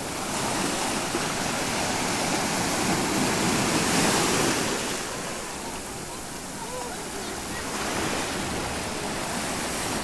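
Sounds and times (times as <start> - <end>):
sea surf breaking on shore: 0.0 - 10.0.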